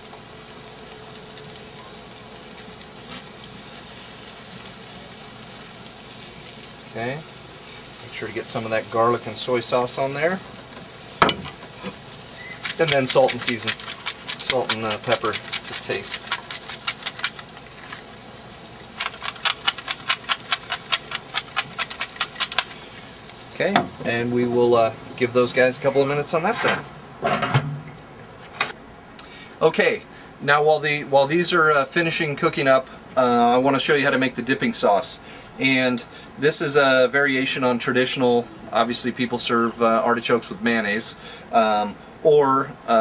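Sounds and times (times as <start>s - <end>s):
vegetables sizzling on a grill: 0.0s - 27.3s
glass shaker rattling: 12.4s - 18.1s, 18.9s - 22.8s.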